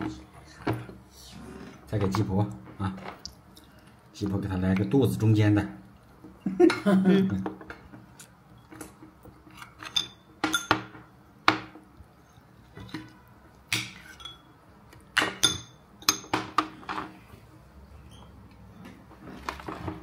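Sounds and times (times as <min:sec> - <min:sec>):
spoons clinking against dishes: 0:09.6 - 0:11.0, 0:13.7 - 0:14.6, 0:15.2 - 0:16.6.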